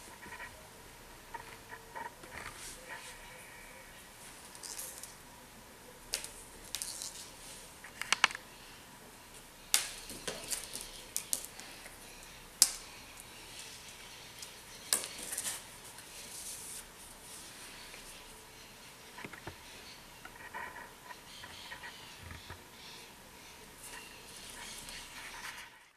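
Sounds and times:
claws and cord tapping on tiles: 0:04.4 - 0:05.2, 0:06.1 - 0:07.3, 0:07.9 - 0:08.4, 0:09.7 - 0:12.0, 0:12.6 - 0:16.4.

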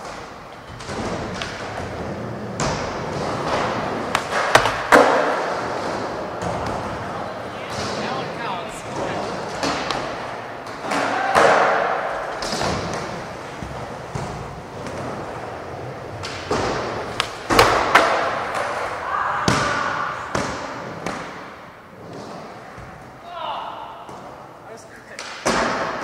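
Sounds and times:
skateboard clacks: 0:00.0 - 0:19.0
skateboards rolling: 0:00.0 - 0:23.2.

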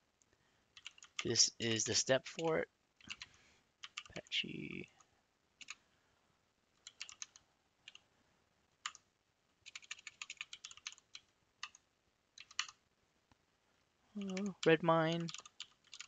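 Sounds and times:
keyboard typing: 0:00.8 - 0:01.4, 0:03.0 - 0:04.3, 0:05.6 - 0:05.8, 0:06.8 - 0:08.0, 0:08.8 - 0:11.8, 0:12.4 - 0:12.8, 0:14.2 - 0:16.0.

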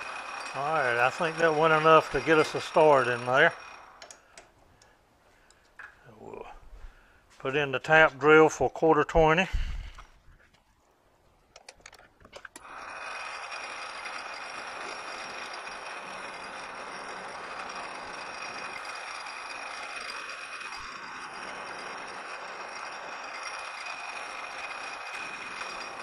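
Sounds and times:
metal lathe whining: 0:00.0 - 0:04.6, 0:12.5 - 0:26.0
clicks: 0:04.0 - 0:06.0, 0:11.5 - 0:12.7.

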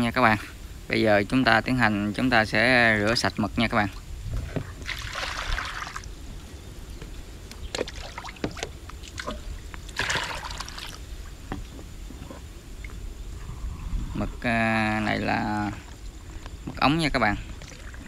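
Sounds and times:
water pouring into plastic bowls: 0:04.8 - 0:06.1, 0:07.8 - 0:11.0.

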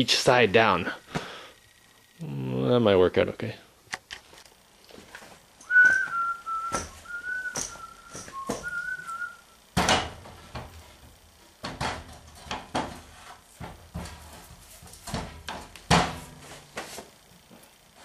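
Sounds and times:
person whistling a tune: 0:05.6 - 0:09.6.

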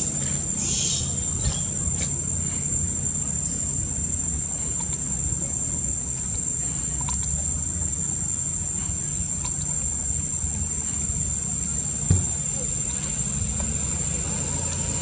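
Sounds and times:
high-pitched insect buzz: 0:00.0 - 0:02.7
low background rumble: 0:00.0 - 0:15.0
faint short chirps: 0:00.2 - 0:02.6.

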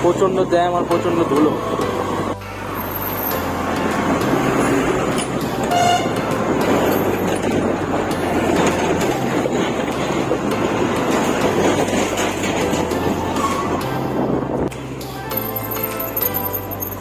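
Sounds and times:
wind noise: 0:01.5 - 0:17.0
vehicle horn toot: 0:05.7 - 0:06.2.

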